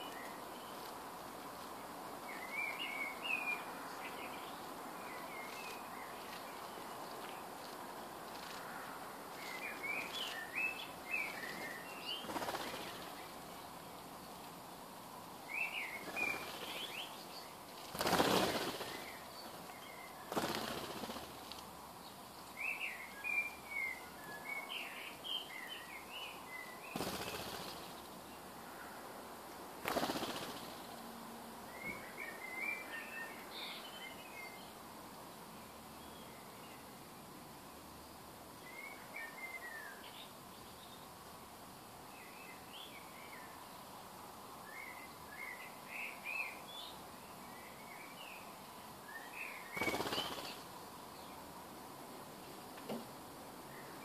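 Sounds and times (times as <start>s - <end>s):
bird wings flapping whooshes: 11.3s - 13.1s, 17.8s - 19.2s, 20.3s - 21.5s, 26.9s - 28.0s, 29.8s - 30.9s, 49.7s - 50.6s
bird chirps: 44.7s - 51.4s.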